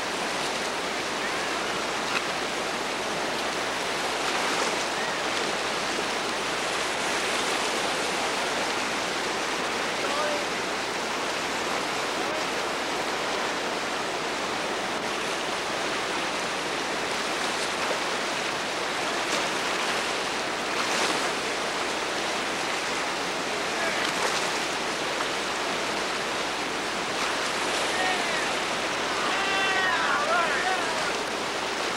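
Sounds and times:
whitewater rapids rushing: 0.0 - 31.9.

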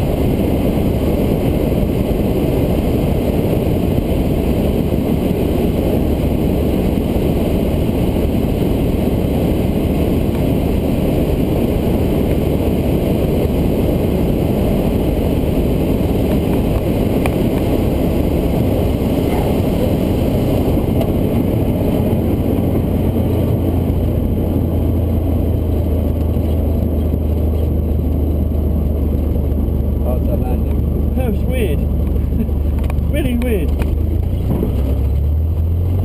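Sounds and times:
propeller plane engine drone: 0.0 - 36.0.

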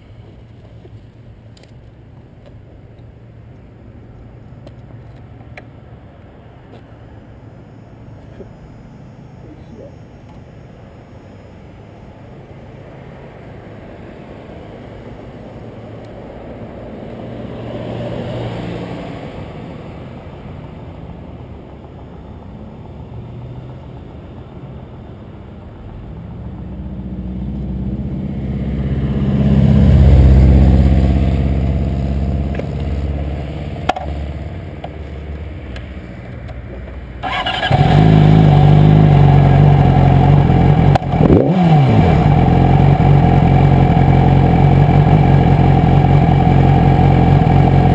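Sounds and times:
passing road traffic: 0.0 - 47.9
motorcycle engine starting and idling: 28.7 - 35.3, 37.1 - 47.9.

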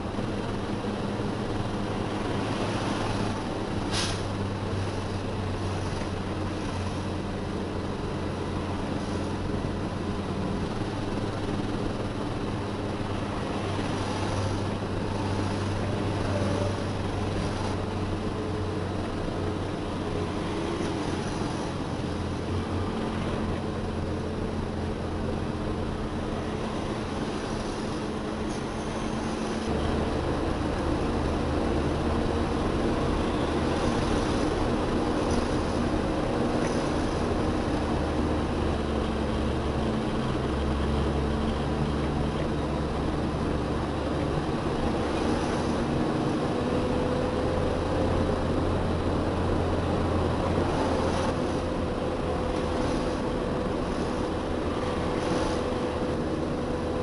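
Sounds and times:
diesel truck engine driving: 0.0 - 57.0.

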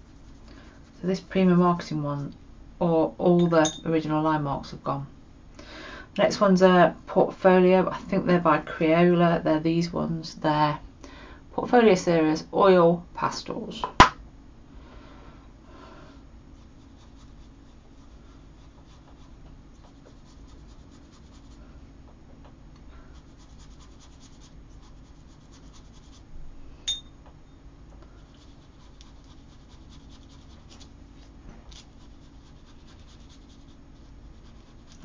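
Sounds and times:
wet paintbrush scrubbing paper: 0.0 - 1.4, 16.5 - 21.6, 23.1 - 26.3, 28.2 - 35.0.

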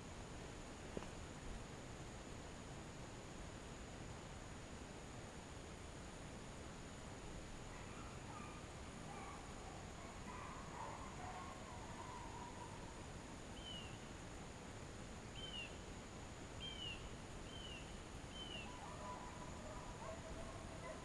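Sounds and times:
rain and wind hiss: 0.0 - 21.0
bird chirps: 13.6 - 14.0, 15.3 - 15.8, 16.6 - 19.2.

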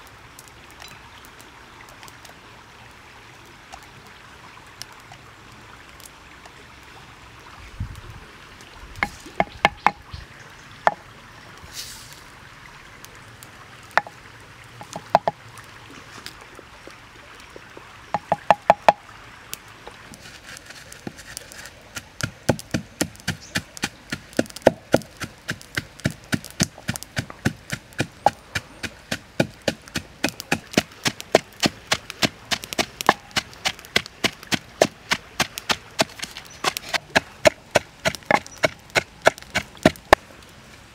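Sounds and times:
wooden pestle pounding in mortar: 22.2 - 40.2.

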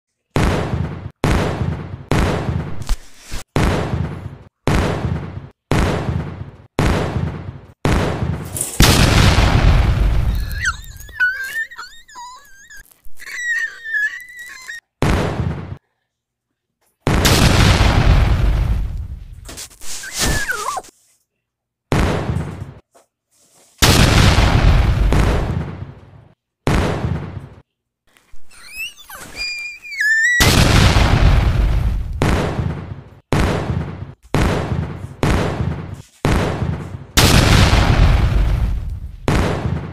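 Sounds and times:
explosion booms: 3.6 - 11.1, 17.1 - 19.5, 23.8 - 26.0, 30.4 - 39.9
loud boom: 8.8 - 11.0, 30.4 - 32.5.

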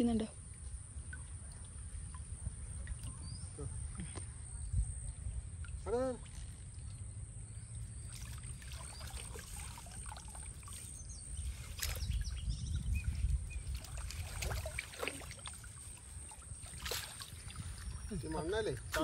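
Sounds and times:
water sloshing and dripping: 0.4 - 4.3, 4.9 - 19.0
sharp water splashes: 7.7 - 19.0.

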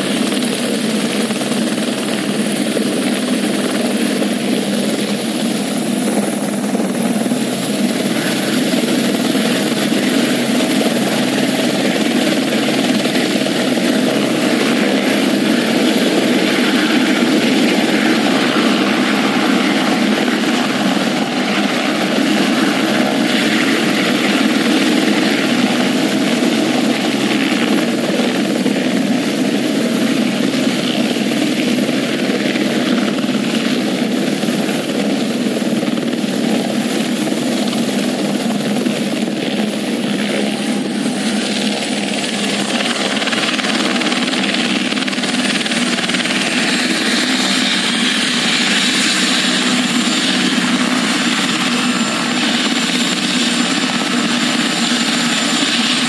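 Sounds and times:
helicopter rotor and engine: 0.0 - 56.0.

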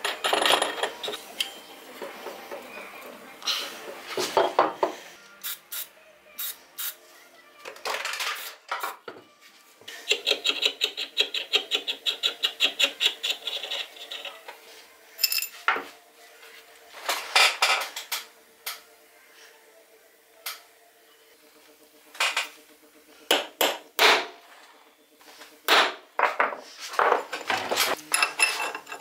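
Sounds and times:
metal parts clinking and clanking: 0.0 - 1.2, 15.2 - 15.6, 27.2 - 29.0.

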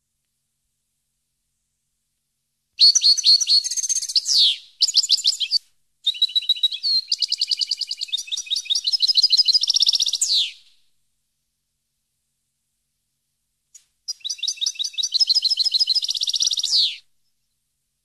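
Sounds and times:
finch twittering song: 2.8 - 10.7, 14.1 - 17.5.

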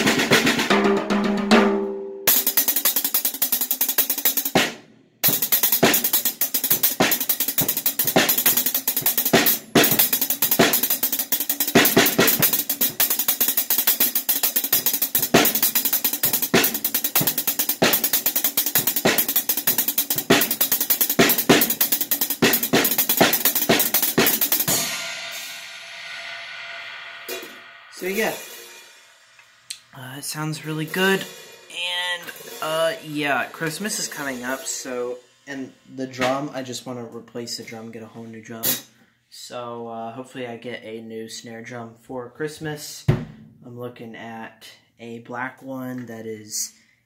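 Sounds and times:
drum kit fast groove: 0.0 - 29.2, 29.8 - 37.0
crash cymbals ringing: 24.7 - 31.7, 32.3 - 36.2.

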